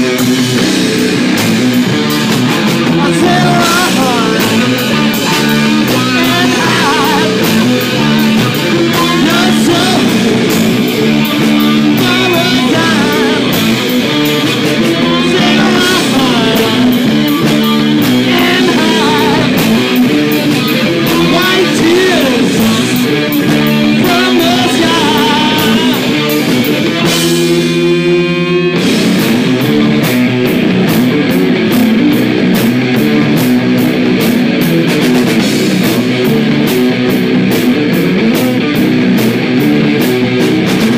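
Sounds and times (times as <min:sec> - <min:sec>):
electric guitar chord ringing: 0:00.0 - 0:35.0
rock band playing: 0:00.0 - 0:40.9.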